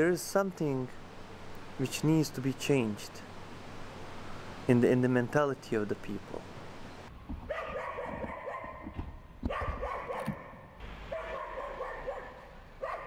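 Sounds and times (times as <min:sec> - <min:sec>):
dog whining and yipping: 0:07.5 - 0:08.9, 0:09.5 - 0:10.5.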